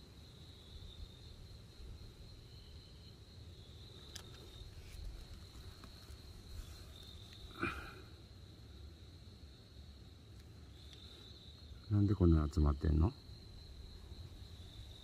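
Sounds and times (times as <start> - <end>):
insect trilling: 0.3 - 15.0.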